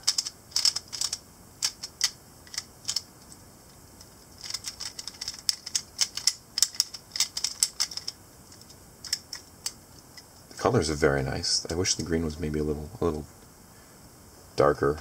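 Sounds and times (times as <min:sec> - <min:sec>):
puzzle pieces clicking: 0:00.0 - 0:03.4, 0:04.4 - 0:09.8.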